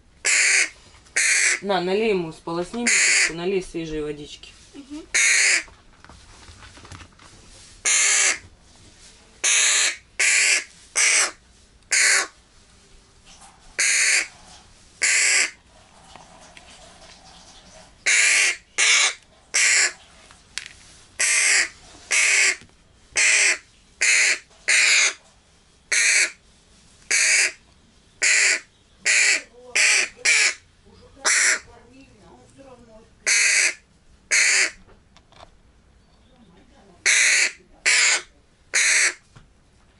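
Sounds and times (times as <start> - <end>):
crow harsh begging caws: 0.2 - 1.6, 2.8 - 3.4, 5.1 - 5.7, 7.8 - 8.4, 9.4 - 12.3, 13.8 - 14.3, 15.0 - 15.6, 18.0 - 20.0, 21.2 - 22.6, 23.2 - 25.2, 25.9 - 26.4, 27.1 - 27.6, 28.2 - 30.6, 31.2 - 31.7, 33.2 - 34.8, 37.0 - 39.2.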